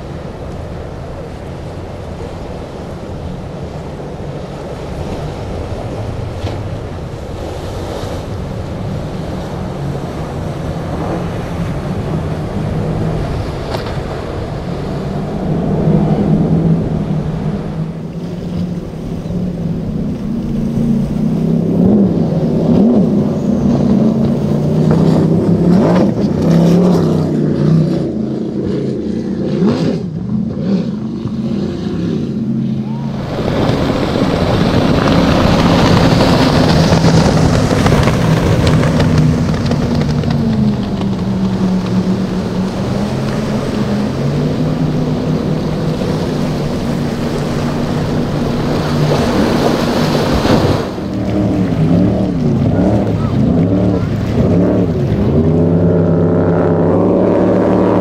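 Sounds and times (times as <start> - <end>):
rushing water and spray: 0.0 - 58.0
speedboat engines droning: 0.0 - 58.0
wind: 0.0 - 58.0.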